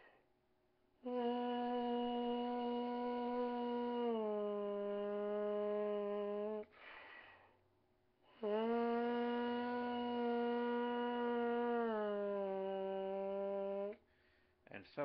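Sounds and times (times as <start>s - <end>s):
lips buzzing into mouthpiece: 1.0s - 6.7s, 8.3s - 14.0s
quick breath: 6.7s - 7.6s, 14.0s - 14.6s.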